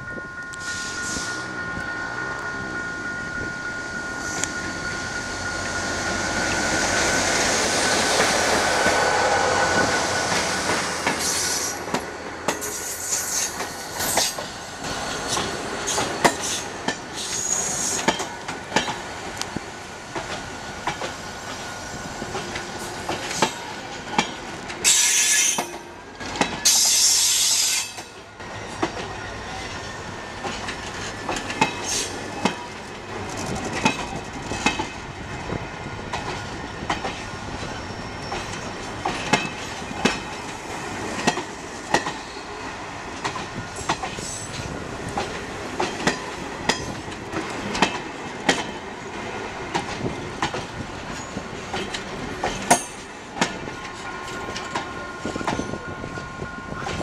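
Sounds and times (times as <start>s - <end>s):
train wheels clacking over rail joints: 6.4s - 21.6s, 22.2s - 28.1s, 30.4s - 35.0s, 36.0s - 42.4s, 43.2s - 55.8s.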